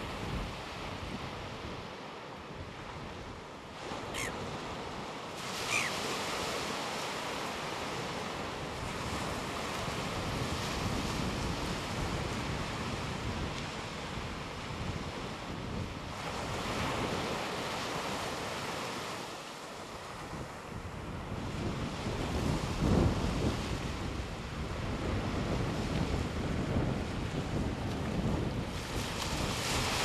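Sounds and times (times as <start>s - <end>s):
surf washing onto beach: 0.0s - 30.0s
short high bird calls: 4.1s - 4.4s, 5.6s - 6.0s
wind buffeting microphone: 7.9s - 17.4s, 20.2s - 30.0s.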